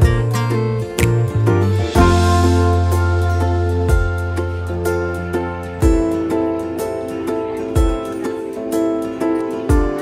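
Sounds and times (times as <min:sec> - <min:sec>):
instrumental music: 0:00.0 - 0:10.0
deep drum hit: 0:01.8 - 0:04.4.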